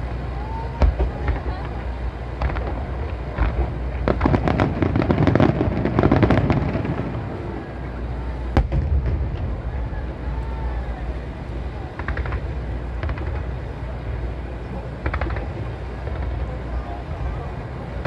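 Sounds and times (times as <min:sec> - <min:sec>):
fireworks bangs and crackles: 0:00.0 - 0:18.0
sharp firework bang: 0:08.6 - 0:09.8.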